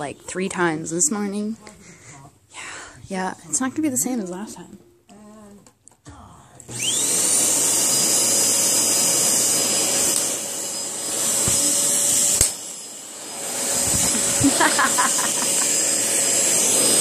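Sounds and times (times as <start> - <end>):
fan motor whining and humming: 6.7 - 17.0.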